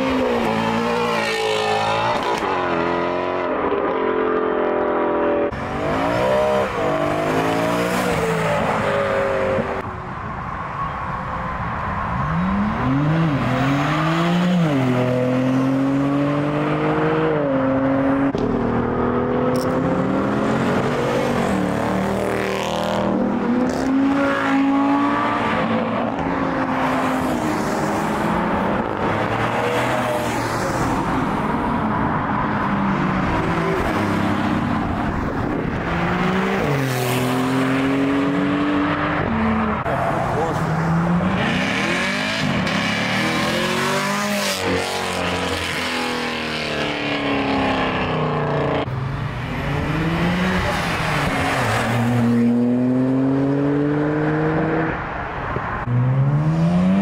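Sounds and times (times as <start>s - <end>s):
cars accelerating past: 11.9s - 57.0s.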